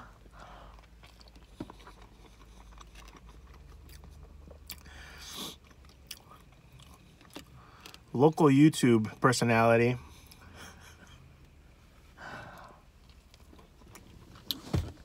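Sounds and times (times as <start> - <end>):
person chewing: 0.2 - 8.1.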